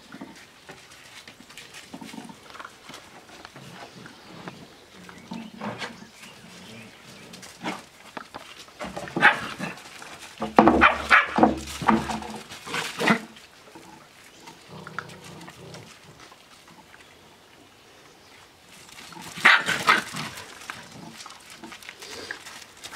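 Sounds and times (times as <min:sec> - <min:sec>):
puppies barking and yapping: 0:09.1 - 0:13.4, 0:19.2 - 0:22.9
dogs playing: 0:18.7 - 0:22.9.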